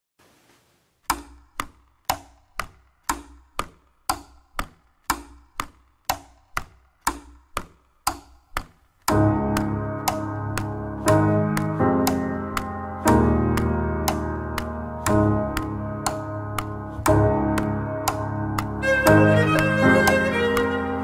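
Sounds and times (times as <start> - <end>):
piano chords: 9.1 - 21.0
cello: 18.8 - 21.0.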